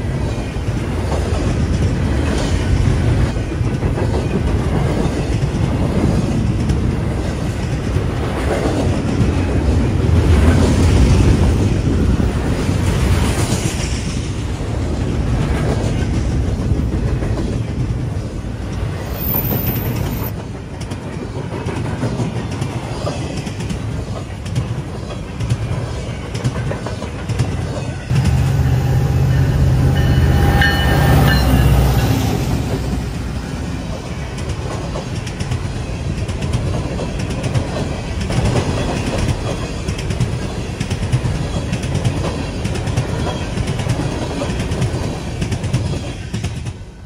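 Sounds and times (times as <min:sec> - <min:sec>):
freight train rumbling past: 0:00.0 - 0:47.0
high ringing tones: 0:28.1 - 0:33.6.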